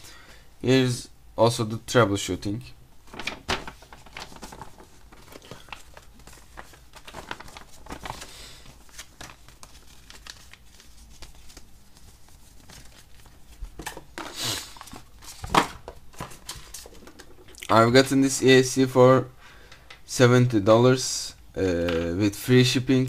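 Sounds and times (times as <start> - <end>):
paper crinkling and rustling: 3.0 - 17.4.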